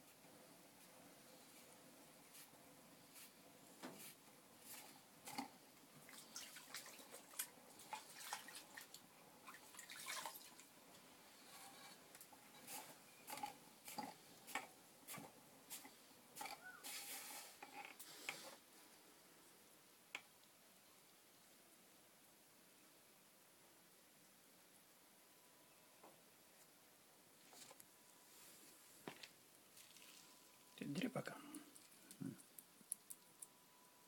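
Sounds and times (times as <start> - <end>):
wet clay clicks and drips: 29.7 - 30.3, 31.7 - 33.5.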